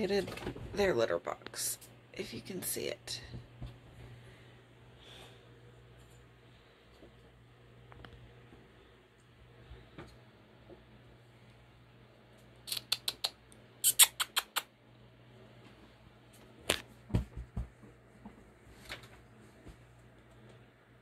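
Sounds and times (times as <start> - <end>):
dull thumps: 17.1 - 17.9.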